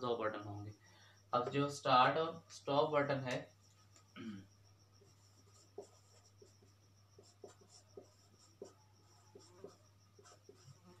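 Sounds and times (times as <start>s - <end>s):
marker pen writing on whiteboard: 5.0s - 11.0s.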